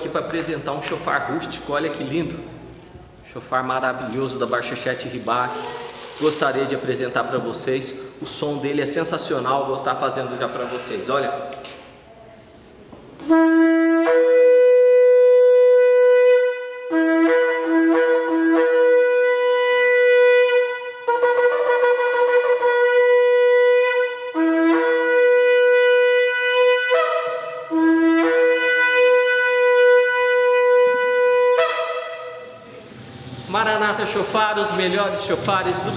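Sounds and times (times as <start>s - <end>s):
shofar blasts: 13.2s - 35.9s.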